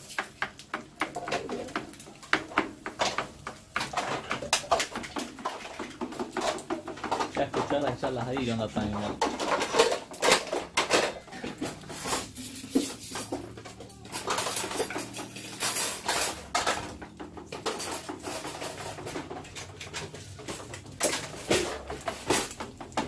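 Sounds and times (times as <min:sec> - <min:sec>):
wooden spoon scraping frying pan: 0:00.0 - 0:23.0.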